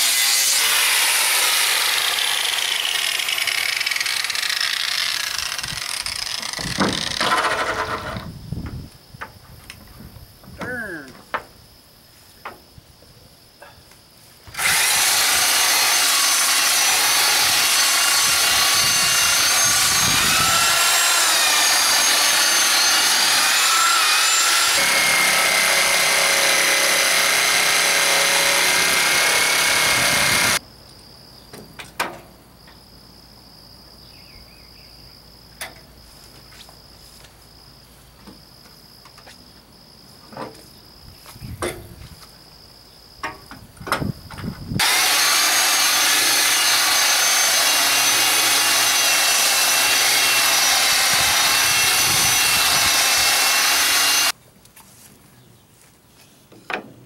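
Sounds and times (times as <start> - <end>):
electric jigsaw cutting wood: 0.0 - 8.2, 14.5 - 30.6, 44.8 - 54.4.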